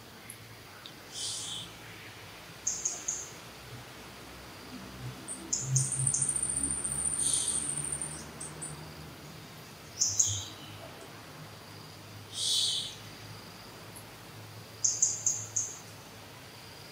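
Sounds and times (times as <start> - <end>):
birds chirping: 1.1 - 3.4, 5.2 - 8.7, 12.3 - 13.1.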